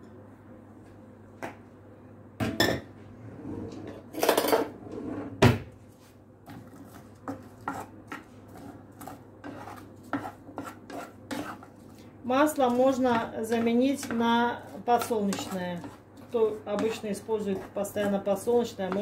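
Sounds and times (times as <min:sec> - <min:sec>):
wooden spatula stirring onion: 0:06.0 - 0:19.0.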